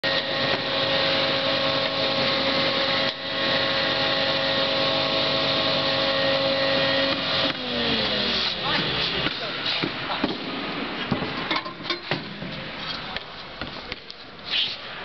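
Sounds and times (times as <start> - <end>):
woodworking machine motor whine: 0.0 - 9.6.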